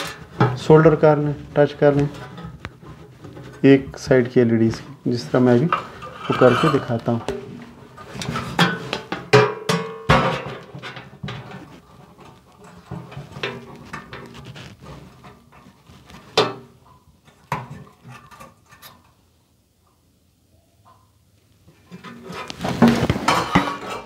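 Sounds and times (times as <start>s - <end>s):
metallic clinks and scraping: 5.7s - 7.3s.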